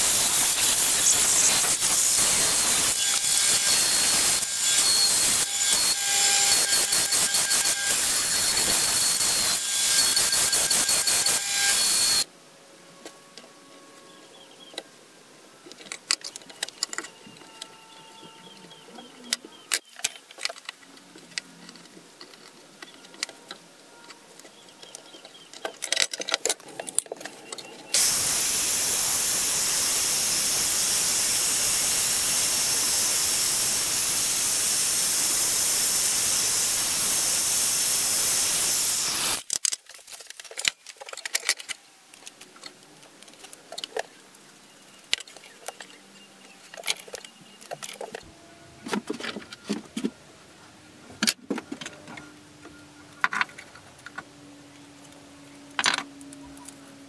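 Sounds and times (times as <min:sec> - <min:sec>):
drill press drilling wood: 0:00.0 - 0:12.2.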